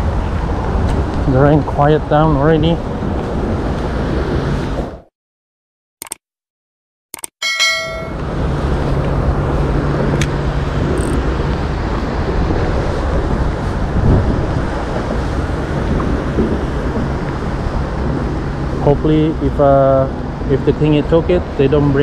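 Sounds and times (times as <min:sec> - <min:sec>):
wind on the microphone: 0:00.0 - 0:05.0, 0:09.5 - 0:20.6
road traffic rumble: 0:00.0 - 0:05.1, 0:08.1 - 0:22.0
bell-like chime: 0:07.4 - 0:08.4.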